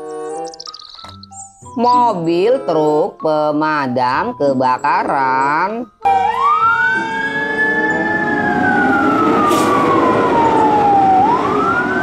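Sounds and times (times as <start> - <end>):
fire engine siren wailing: 6.0 - 12.0
fire truck engine: 6.1 - 12.0.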